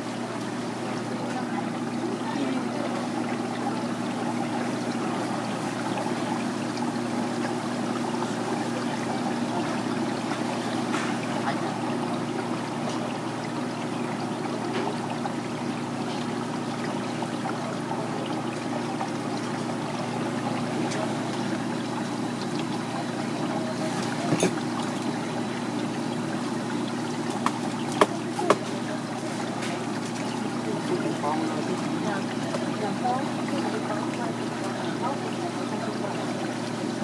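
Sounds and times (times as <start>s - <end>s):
knife tapping on cutting board: 27.4s - 28.6s.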